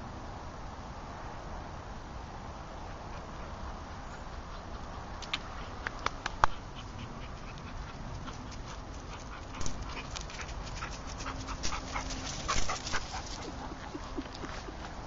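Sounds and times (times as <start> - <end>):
dog panting: 6.5 - 15.0.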